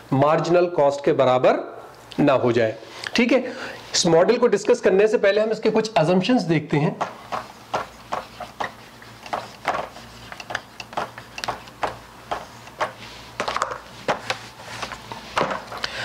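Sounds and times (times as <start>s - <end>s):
marker writing on a whiteboard: 7.0s - 13.1s.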